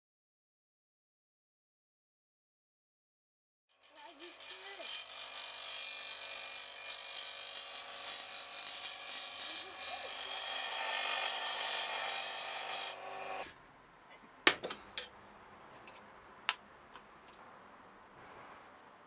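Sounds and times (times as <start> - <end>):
metal grinding on wheel: 3.7 - 13.5
bench grinder motor hum: 3.8 - 13.5.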